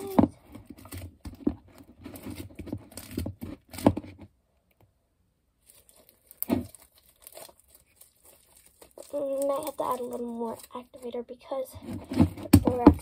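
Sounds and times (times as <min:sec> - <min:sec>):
slime crackling wetly: 0:05.6 - 0:11.7.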